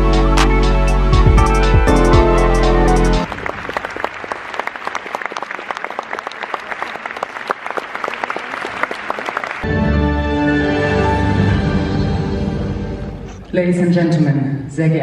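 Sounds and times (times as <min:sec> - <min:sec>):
music with deep bass: 0:00.0 - 0:03.3
audience applauding: 0:03.2 - 0:09.8.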